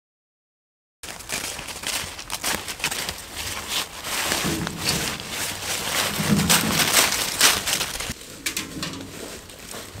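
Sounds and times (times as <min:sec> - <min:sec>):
footsteps crunching leaves: 0:01.0 - 0:08.4
wheelbarrow over dry leaves: 0:01.0 - 0:10.0.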